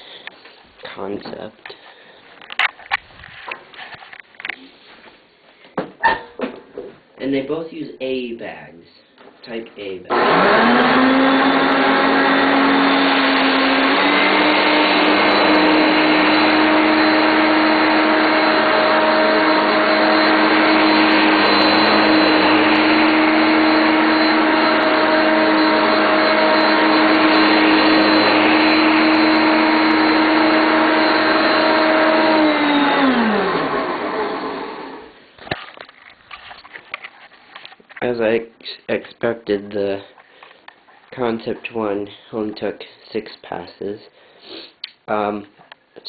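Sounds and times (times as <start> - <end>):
vacuum cleaner motor whine: 10.1 - 35.2.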